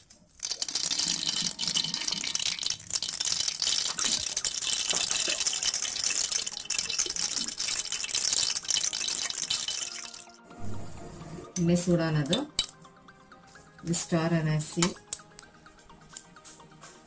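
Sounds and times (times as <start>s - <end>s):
oil sizzling with fine crackles: 0.0s - 10.4s.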